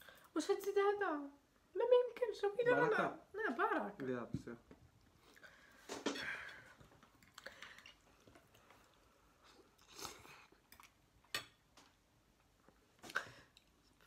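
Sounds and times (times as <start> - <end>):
person chewing noodles: 7.0 - 11.2.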